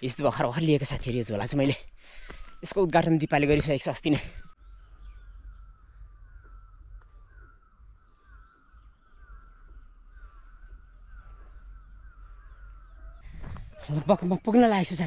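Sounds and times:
bird warbling: 4.3 - 15.0
high-pitched insect whine: 4.6 - 13.9
low background rumble: 4.6 - 14.7.

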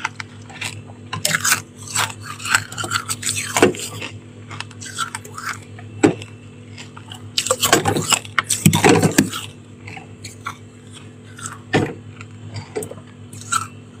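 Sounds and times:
frost crunching: 0.0 - 14.0
steady low hum: 0.0 - 14.0.

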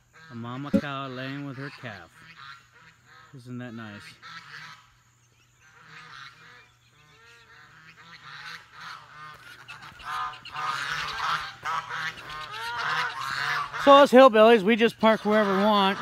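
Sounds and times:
geese honking: 4.0 - 14.2, 14.8 - 16.0.

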